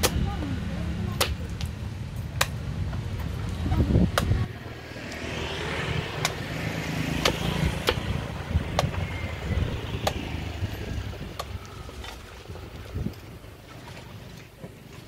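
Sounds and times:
machete chopping coconut: 0:00.0 - 0:00.3, 0:01.2 - 0:01.5, 0:02.3 - 0:02.6, 0:04.0 - 0:04.4, 0:06.1 - 0:09.2, 0:10.0 - 0:10.3.

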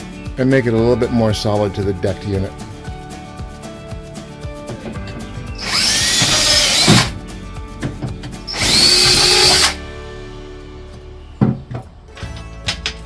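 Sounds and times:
cordless drill whining: 0:05.6 - 0:07.2, 0:08.5 - 0:09.8.

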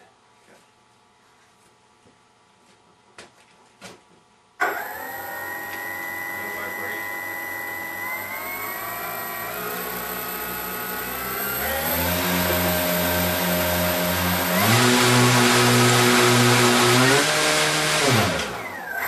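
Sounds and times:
electric motors whining: 0:04.6 - 0:19.0
propeller drone: 0:07.9 - 0:16.8.

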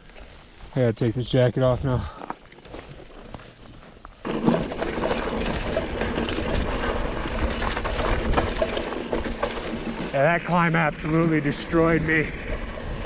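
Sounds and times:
mountain bike tyres on rocky trail: 0:00.0 - 0:13.0
bike clattering and knocking: 0:04.3 - 0:10.4.

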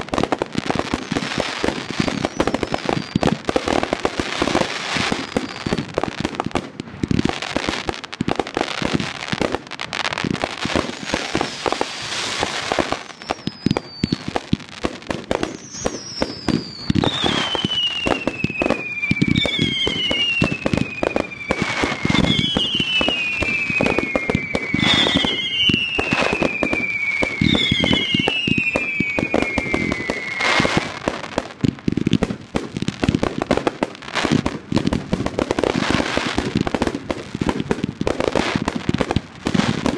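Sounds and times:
fireworks whistling tones: 0:00.0 - 0:06.1, 0:10.0 - 0:32.3
fireworks bangs and crackling: 0:00.0 - 0:39.9.

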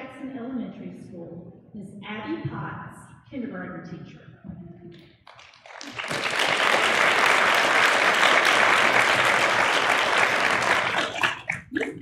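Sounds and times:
audience applauding: 0:05.3 - 0:11.7.

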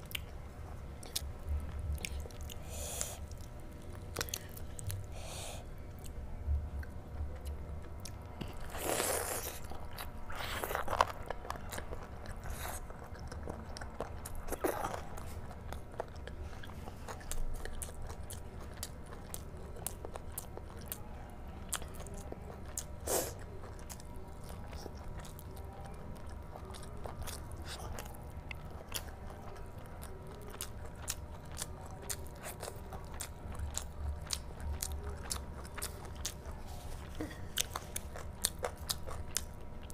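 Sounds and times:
person chewing food: 0:00.0 - 0:06.2, 0:06.8 - 0:21.0, 0:21.7 - 0:39.9.

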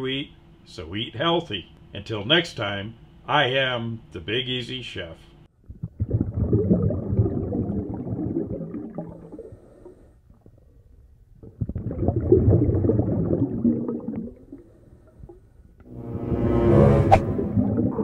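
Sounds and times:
underwater bubbling and gurgling: 0:05.7 - 0:10.7, 0:11.4 - 0:15.5, 0:17.3 - 0:18.0.

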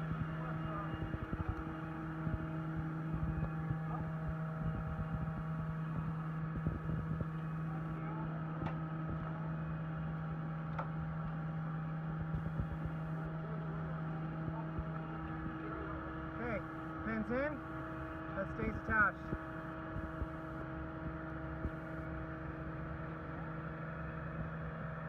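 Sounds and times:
low mechanical hum: 0:00.0 - 0:25.0.

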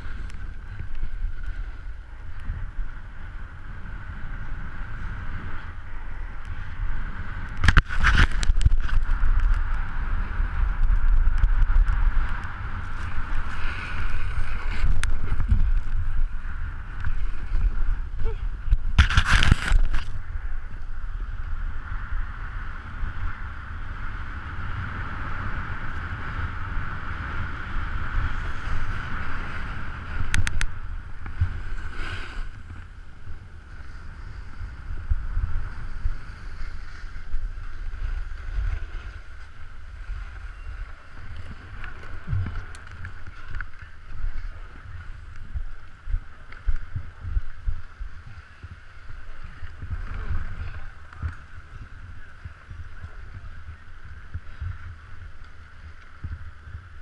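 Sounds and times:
wind buffeting microphone: 0:00.0 - 0:57.0
steady hiss: 0:12.4 - 0:56.8.

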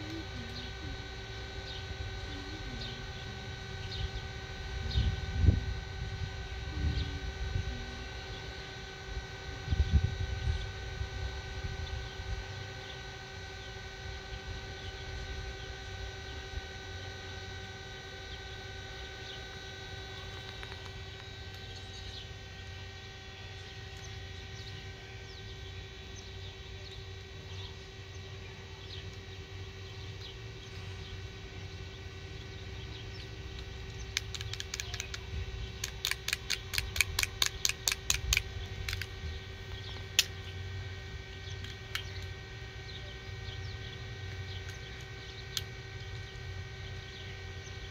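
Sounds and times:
steady hum: 0:00.0 - 0:47.9
fidget toy clicks: 0:33.5 - 0:35.2, 0:35.8 - 0:39.1.

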